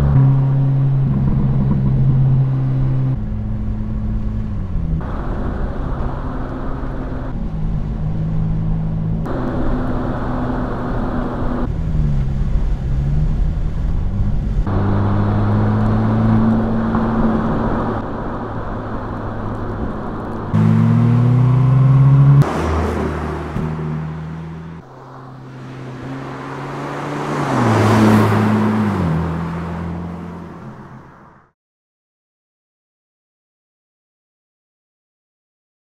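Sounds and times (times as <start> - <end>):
car engine revving: 0.0 - 31.3
car driving past: 20.5 - 31.4.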